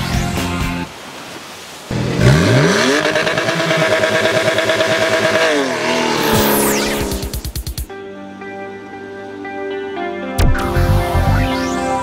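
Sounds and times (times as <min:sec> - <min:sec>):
car engine revving: 0:01.9 - 0:07.8.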